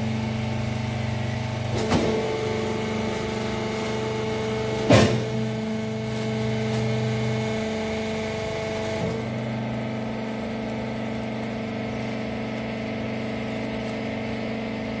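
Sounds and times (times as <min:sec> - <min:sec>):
baler machine humming: 0:00.0 - 0:15.0.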